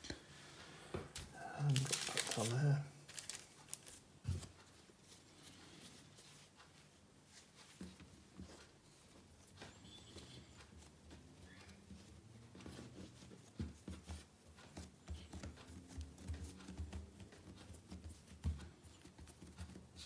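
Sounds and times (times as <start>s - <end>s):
hands kneading bread dough: 0.0s - 20.0s.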